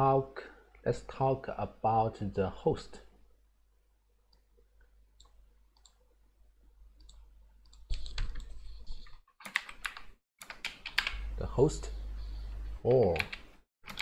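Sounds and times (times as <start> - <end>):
keyboard typing: 7.0 - 11.3, 13.0 - 14.0.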